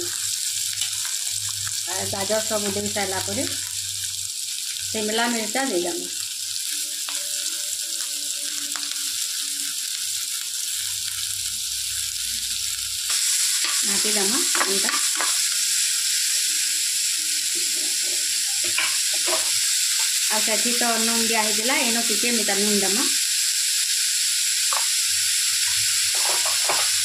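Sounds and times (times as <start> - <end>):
vegetables sizzling in hot oil: 0.0 - 27.0
metal spatula scraping: 25.7 - 27.0.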